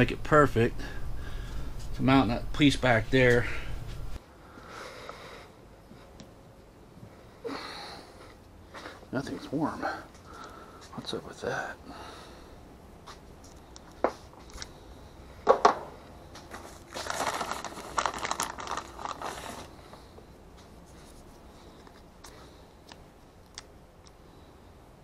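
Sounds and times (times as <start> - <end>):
crinkly rustling: 16.4 - 22.4.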